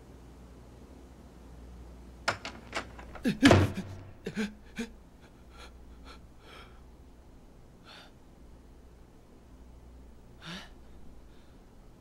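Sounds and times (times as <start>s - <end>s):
low steady hum: 0.0s - 12.0s
man gasping: 10.4s - 11.6s.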